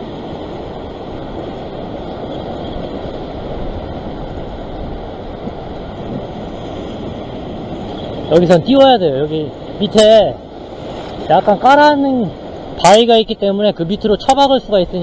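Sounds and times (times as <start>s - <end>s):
surf breaking against rocks: 0.0s - 15.0s
wind buffeting microphone: 0.0s - 15.0s.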